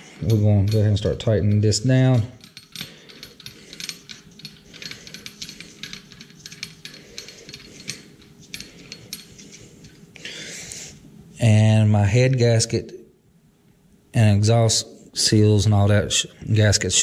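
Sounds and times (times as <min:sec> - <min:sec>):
faint steady hum: 0:00.0 - 0:17.0
hand ratchet clicking: 0:02.4 - 0:10.0.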